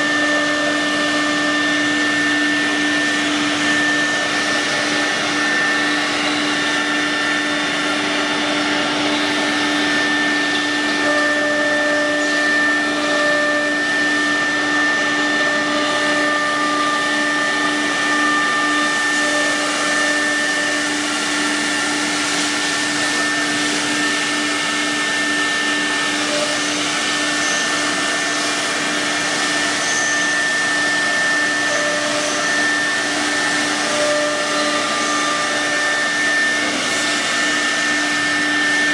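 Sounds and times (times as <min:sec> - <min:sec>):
router spindle whine: 0:00.0 - 0:38.9.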